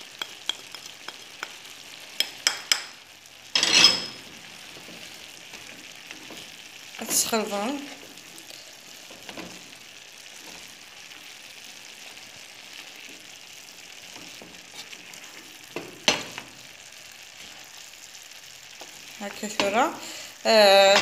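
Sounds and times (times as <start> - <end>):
wooden spoon stirring: 0.0 - 2.9, 14.0 - 16.4
vegetables sizzling in a frying pan: 0.0 - 21.0.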